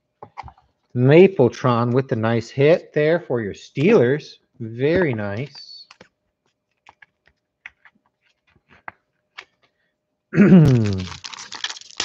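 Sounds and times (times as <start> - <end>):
person speaking: 1.0 - 6.0, 10.4 - 11.2.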